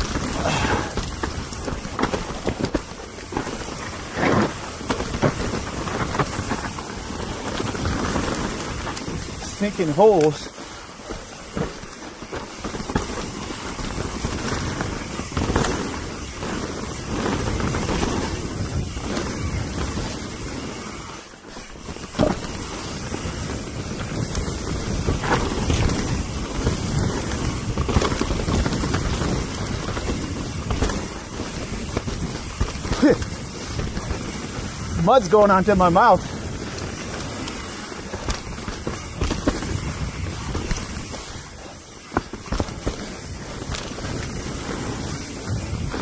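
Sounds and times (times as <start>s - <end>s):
bike knocks and clatters: 0.0s - 35.0s, 36.2s - 46.0s
tyres rolling over dirt: 0.0s - 46.0s
wind rushing over microphone: 0.0s - 46.0s.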